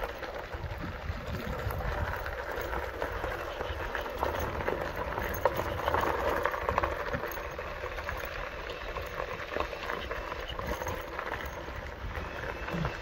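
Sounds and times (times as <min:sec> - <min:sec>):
wind rumble on microphone: 0:00.0 - 0:06.0
gravel crunching underfoot: 0:00.0 - 0:13.0.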